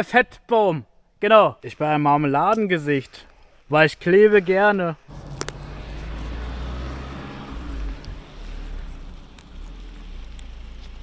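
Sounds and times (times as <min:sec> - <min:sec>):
car driving on paved road: 0:05.0 - 0:11.0.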